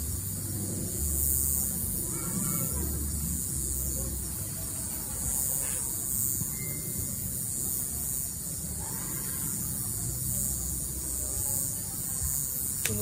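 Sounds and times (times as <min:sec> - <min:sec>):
night insects chirring: 0:00.0 - 0:13.0
faint tone: 0:06.4 - 0:07.3.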